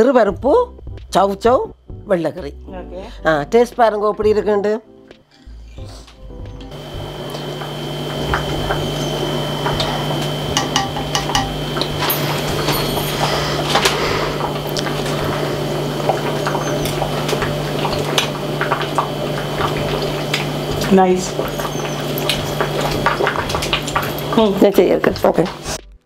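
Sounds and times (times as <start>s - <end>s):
steady hiss and hum: 5.1s - 25.8s.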